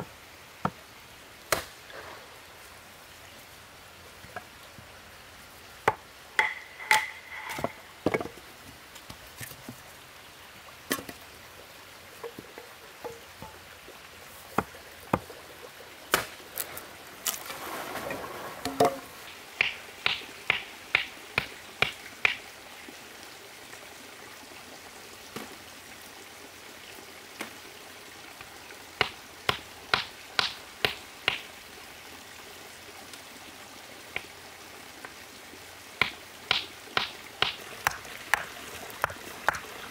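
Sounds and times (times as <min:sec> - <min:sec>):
wood being chopped: 0:01.5 - 0:01.8, 0:16.1 - 0:17.4, 0:19.6 - 0:22.4, 0:29.0 - 0:31.5, 0:36.0 - 0:39.6.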